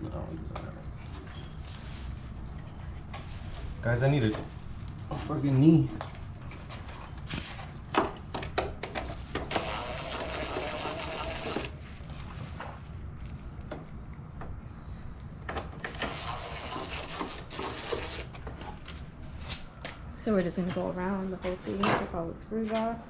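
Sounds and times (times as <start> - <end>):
cordless power driver running: 9.4 - 11.8, 15.9 - 18.4.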